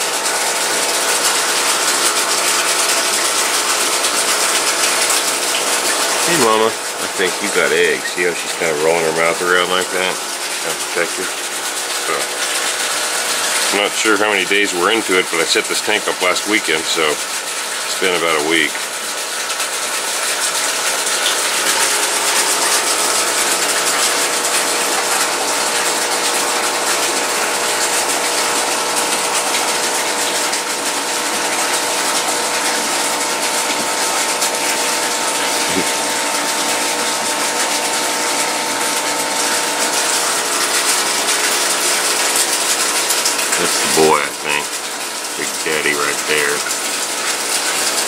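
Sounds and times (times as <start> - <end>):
aquarium air pump humming: 0.0 - 48.0
air bubbling through water: 21.5 - 44.7.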